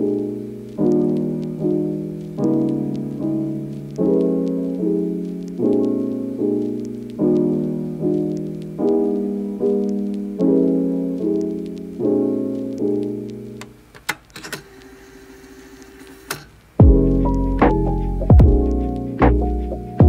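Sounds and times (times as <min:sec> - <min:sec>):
piano chords: 0:00.0 - 0:13.9, 0:16.8 - 0:20.0
clicks: 0:12.6 - 0:16.7
heavy low thump: 0:16.8 - 0:18.7.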